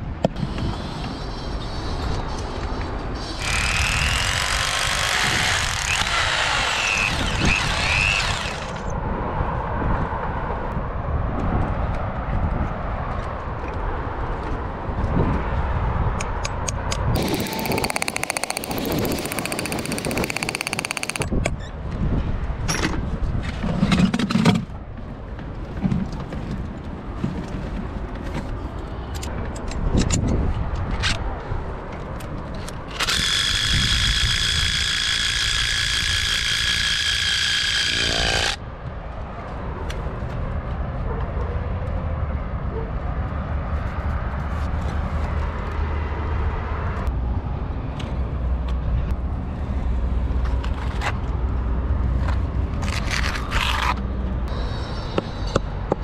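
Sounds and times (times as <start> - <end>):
electric power tool whining: 3.4 - 8.9, 17.2 - 21.3, 33.0 - 38.6.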